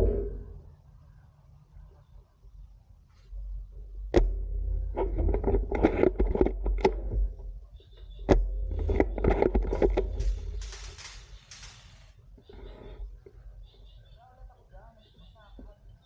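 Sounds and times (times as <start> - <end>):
rapid clattering and knocking: 8.3 - 11.9
airsoft rifle shots: 10.2 - 12.1.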